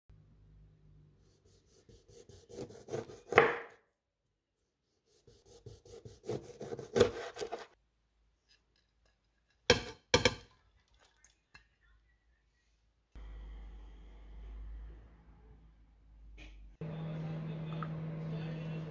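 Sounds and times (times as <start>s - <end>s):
knife slicing a lemon on wood: 1.6s - 3.7s, 5.2s - 7.8s.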